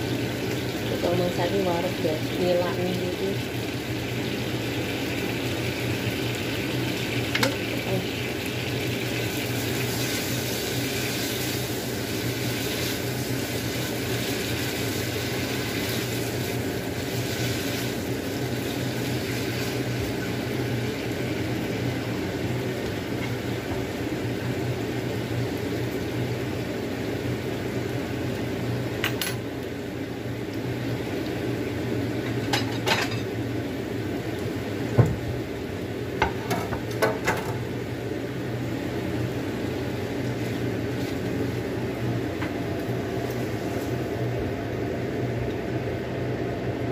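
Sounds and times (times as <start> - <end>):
kitchen hum and hiss: 0.0 - 46.9
plates and dishes clinking: 32.5 - 33.3.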